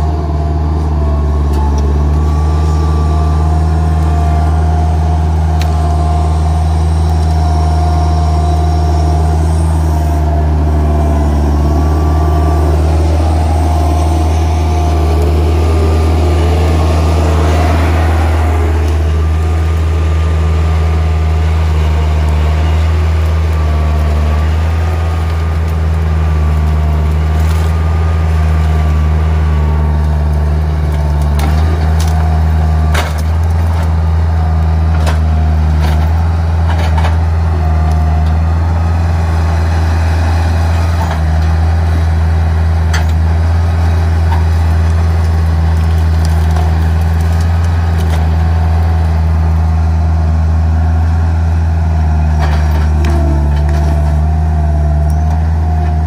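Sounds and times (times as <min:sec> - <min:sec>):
wavering whine: 0:00.0 - 0:30.5
loader engine running: 0:00.0 - 0:56.0.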